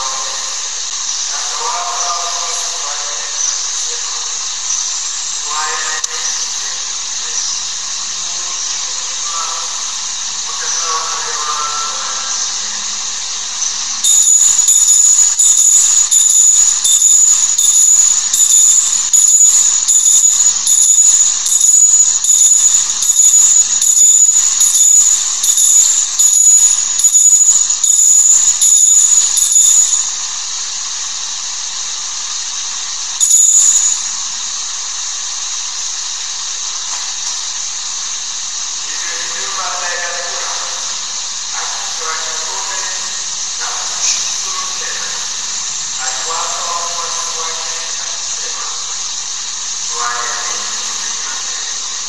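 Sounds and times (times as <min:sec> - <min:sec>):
altar bells ringing: 0:14.0 - 0:30.3, 0:33.2 - 0:34.2.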